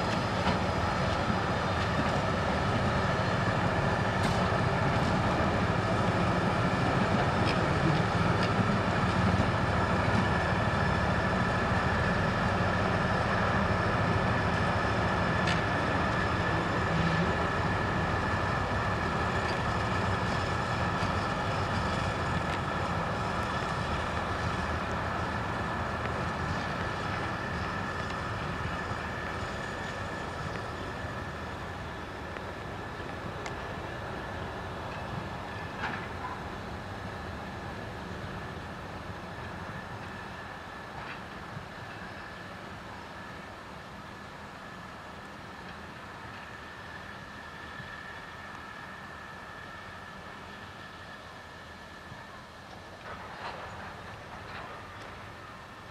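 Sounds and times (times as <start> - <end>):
diesel train running past: 0.0 - 55.9
steady high whine: 0.0 - 55.9.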